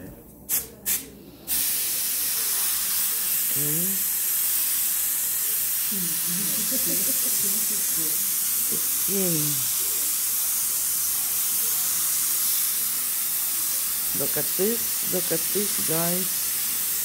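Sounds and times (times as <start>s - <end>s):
spray gun air hiss: 0.5s - 17.0s.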